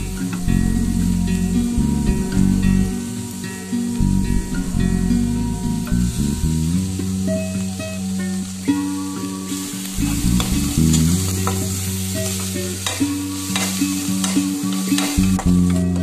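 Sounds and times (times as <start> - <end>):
food sizzling in oil: 0.0 - 16.0
instrumental background music: 0.0 - 16.0.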